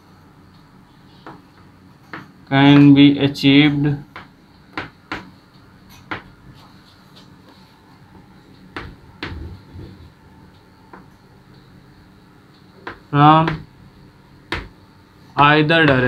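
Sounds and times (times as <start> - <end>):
chalk tapping on blackboard: 1.2 - 2.9, 4.1 - 5.4, 6.0 - 7.3, 12.8 - 13.7, 14.5 - 14.8.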